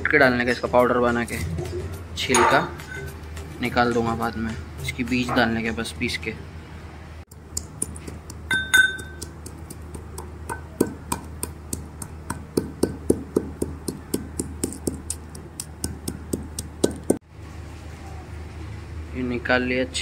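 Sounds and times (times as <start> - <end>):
pestle pounding pods: 7.3 - 17.2.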